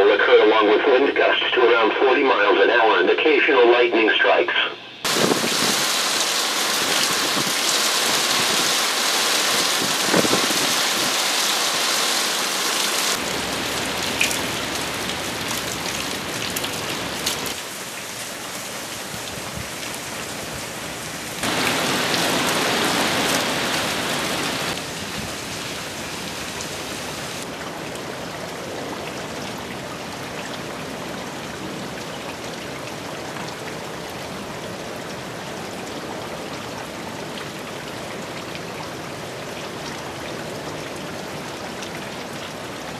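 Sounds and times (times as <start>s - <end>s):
heavy rain falling: 5.1s - 42.9s.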